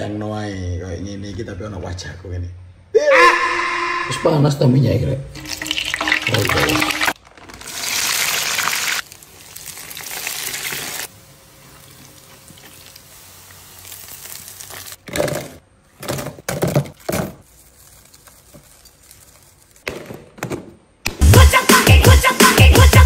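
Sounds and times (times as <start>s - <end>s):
oil sizzling in a frying pan: 5.4s - 15.0s.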